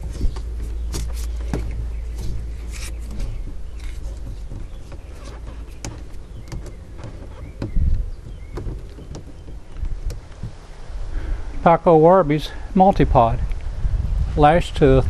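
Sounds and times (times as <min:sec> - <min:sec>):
clicks and knocks of handling: 0:00.0 - 0:10.8
low steady rumble: 0:00.0 - 0:15.0.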